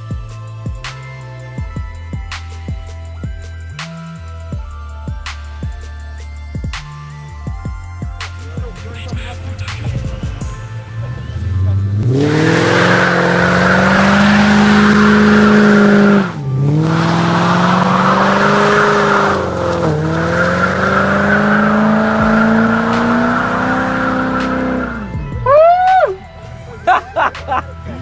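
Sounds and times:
car engine revving: 0:08.4 - 0:25.5
tyres squealing on pavement: 0:11.1 - 0:25.0.

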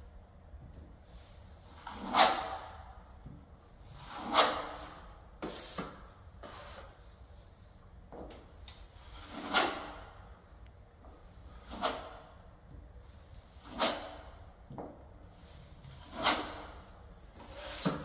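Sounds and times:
trowel scraping filler: 0:03.9 - 0:07.0, 0:09.0 - 0:10.1, 0:15.8 - 0:16.8, 0:17.4 - 0:18.0.

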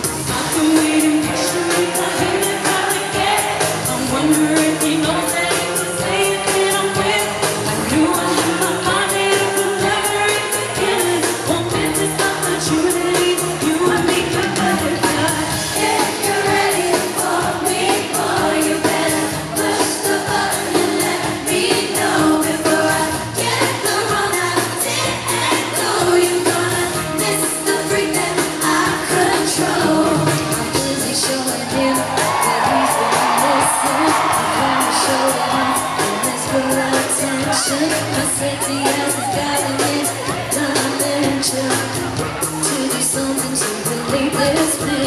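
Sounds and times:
electronic backing with steady beat: 0:00.0 - 0:45.0
women singing pop song: 0:00.0 - 0:45.0.

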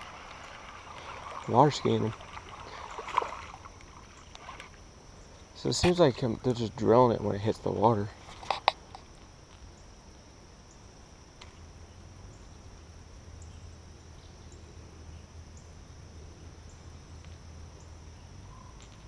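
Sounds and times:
insect chorus: 0:00.0 - 0:19.0
faint high ticks: 0:16.9 - 0:17.4, 0:18.8 - 0:19.0.

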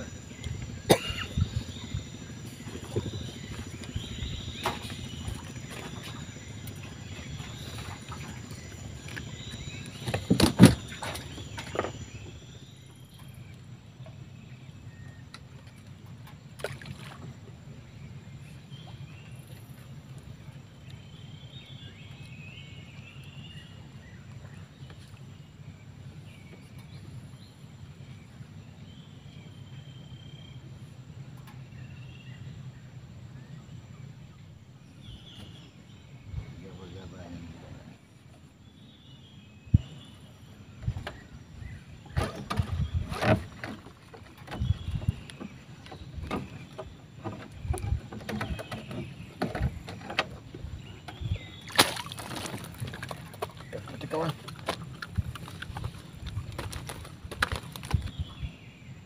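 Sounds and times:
low rumble: 0:00.0 - 0:15.7
knocks and clatter on wooden boat: 0:00.1 - 0:12.6, 0:39.7 - 0:58.5.

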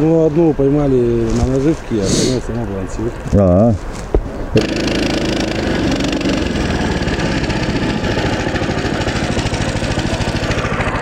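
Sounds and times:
small engine running: 0:04.6 - 0:11.0.

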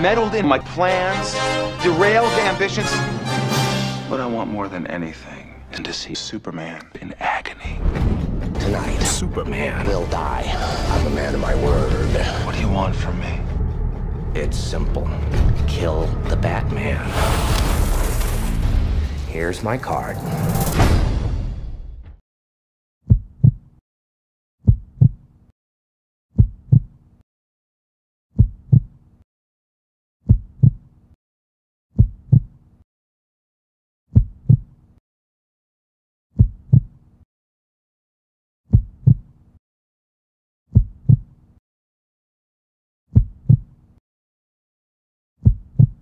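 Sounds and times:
heartbeat thumps: 0:23.1 - 0:23.7, 0:24.6 - 0:25.2, 0:26.4 - 0:26.9, 0:28.4 - 0:29.0, 0:30.3 - 0:30.8, 0:32.0 - 0:32.6, 0:34.1 - 0:34.7, 0:36.4 - 0:36.9, 0:38.7 - 0:39.3, 0:40.7 - 0:41.3, 0:43.1 - 0:43.7, 0:45.4 - 0:46.0.

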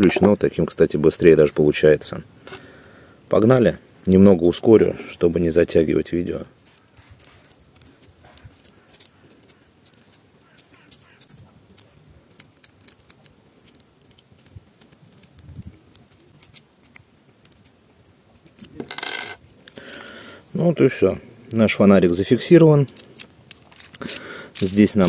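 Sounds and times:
hands handling metal mount: 0:06.5 - 0:20.2, 0:20.8 - 0:25.0
hex key clicking in screws: 0:06.8 - 0:17.8, 0:22.8 - 0:25.0.

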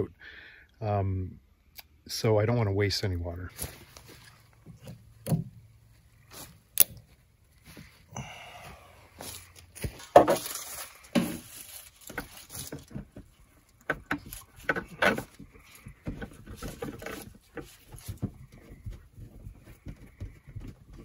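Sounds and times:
garden hose handling noise: 0:03.5 - 0:08.0, 0:09.1 - 0:21.0.

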